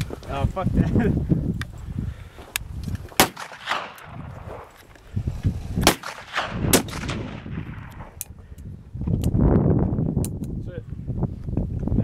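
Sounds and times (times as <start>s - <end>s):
rifle shots: 3.2s - 4.8s, 5.8s - 8.2s.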